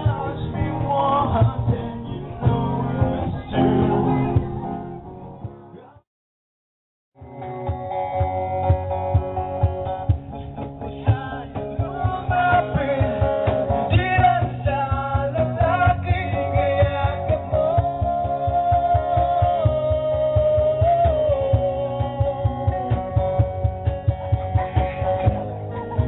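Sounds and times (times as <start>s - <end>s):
men singing: 0.0s - 3.9s, 9.9s - 23.6s
strummed acoustic guitar: 0.0s - 6.0s, 7.2s - 26.0s.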